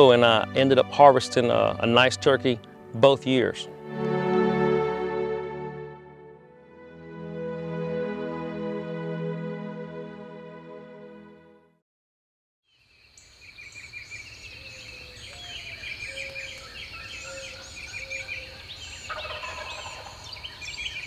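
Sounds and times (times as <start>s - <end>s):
soft music: 0.0s - 11.8s
songbirds chirping and whistling: 13.2s - 21.0s
turkey gobbling: 19.1s - 20.3s.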